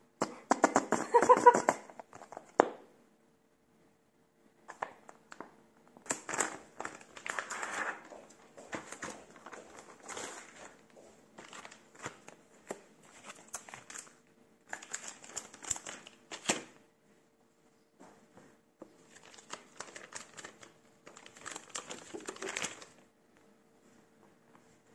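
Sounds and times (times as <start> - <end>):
faint steady hum: 0.0 - 24.9
plastic packaging crinkling: 6.0 - 10.8, 11.4 - 16.8, 19.0 - 23.0.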